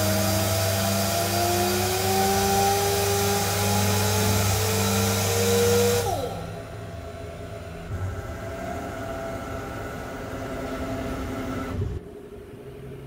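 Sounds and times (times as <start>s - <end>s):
machine low hum: 6.1s - 13.0s.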